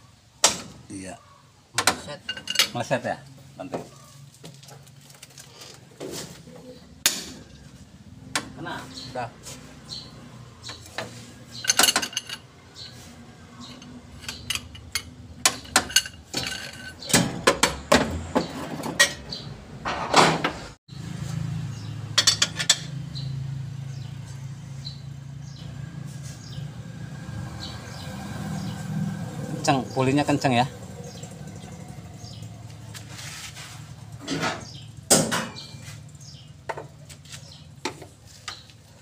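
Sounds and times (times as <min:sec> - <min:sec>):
metal tools clattering: 0:01.8 - 0:03.0, 0:10.7 - 0:20.4, 0:22.2 - 0:23.0.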